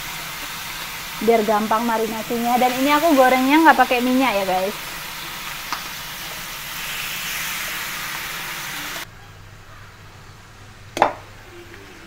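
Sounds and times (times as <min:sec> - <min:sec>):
meat sizzling in a pan: 0:00.0 - 0:09.1.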